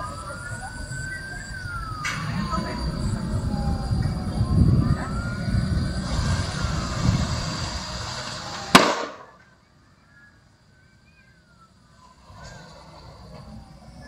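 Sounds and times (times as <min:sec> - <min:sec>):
low rumbling noise: 0:00.0 - 0:14.0
loud sharp bang: 0:02.0 - 0:09.5.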